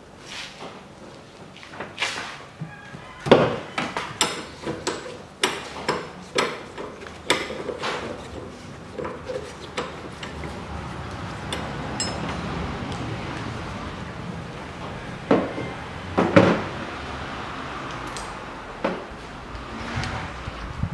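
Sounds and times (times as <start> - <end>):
spanner clinking on metal: 11.5 - 12.4.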